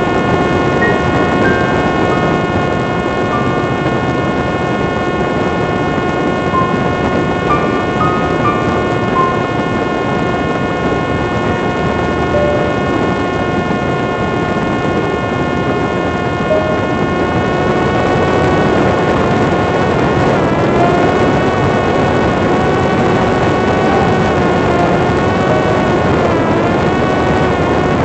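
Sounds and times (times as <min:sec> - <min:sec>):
drone motor whine: 0:16.4 - 0:28.0.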